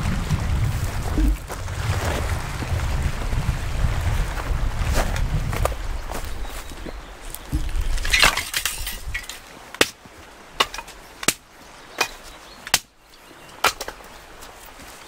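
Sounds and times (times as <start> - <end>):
firewood handling rustle: 4.2 - 15.0
axe chopping wood: 8.1 - 10.0, 10.6 - 11.4, 12.0 - 12.9, 13.6 - 14.0.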